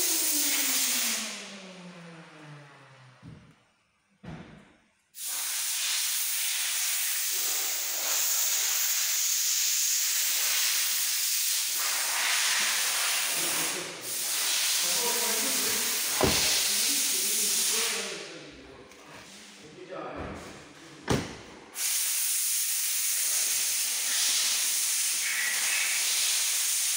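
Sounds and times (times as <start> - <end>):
loud steady hiss: 0.0 - 1.7, 5.2 - 18.4, 21.8 - 26.9.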